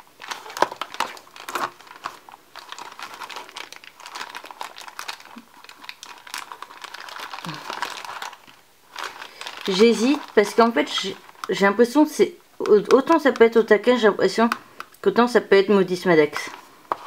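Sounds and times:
cardboard box crinkling and rustling: 0.0s - 11.5s.

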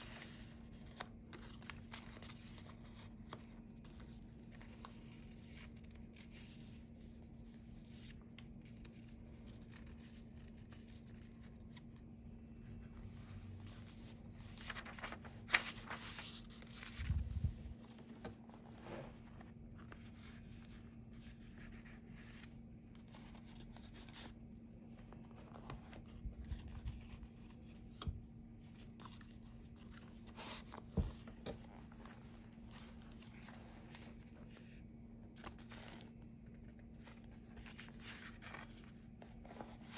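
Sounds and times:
paper rustling and page turns: 0.0s - 12.1s, 12.7s - 39.9s
faint steady hum: 0.0s - 39.9s.

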